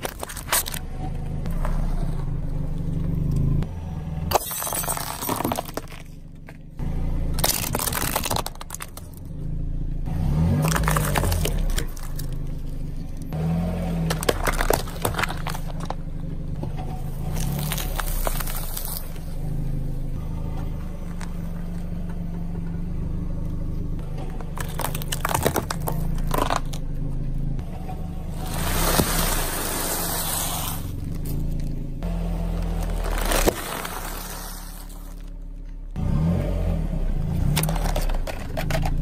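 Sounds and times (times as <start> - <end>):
tyre crushing objects crunching: 0.0 - 0.9, 4.3 - 6.6, 7.3 - 9.3, 10.2 - 16.1, 16.9 - 19.5, 24.0 - 35.7.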